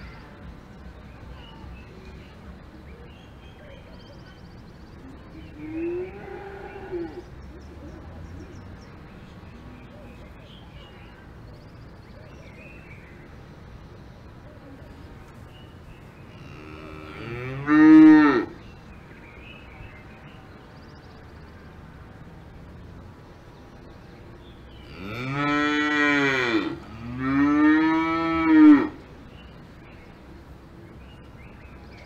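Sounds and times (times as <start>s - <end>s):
cows mooing: 16.4s - 18.6s, 24.8s - 29.0s.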